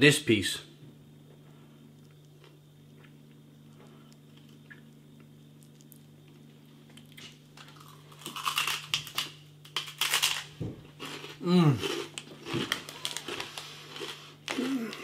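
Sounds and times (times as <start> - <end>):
faint steady hum: 0.0 - 15.0
loud crunching bites: 7.0 - 15.0.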